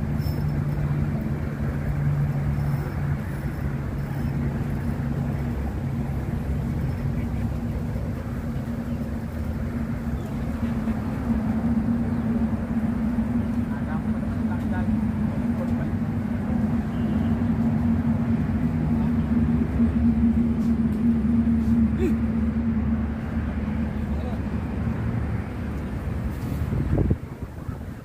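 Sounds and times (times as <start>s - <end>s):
higher hum: 0.0s - 28.0s
low mechanical hum and rumble: 0.0s - 28.0s.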